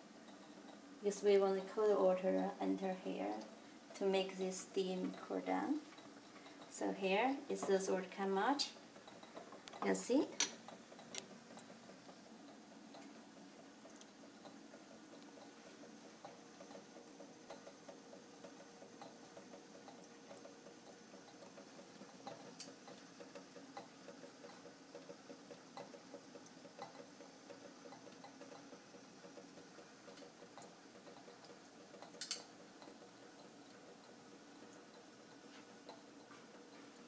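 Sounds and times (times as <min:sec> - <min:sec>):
water boiling in glass flask: 0:00.0 - 0:37.0.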